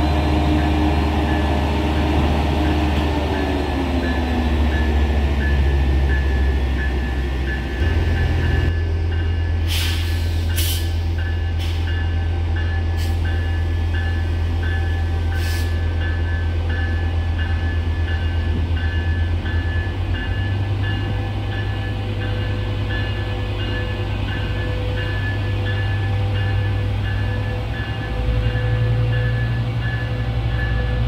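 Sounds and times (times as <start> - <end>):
diesel locomotive engine drone: 0.0 - 31.0
locomotive bell ringing: 0.0 - 31.0
short air hisses: 9.7 - 11.0.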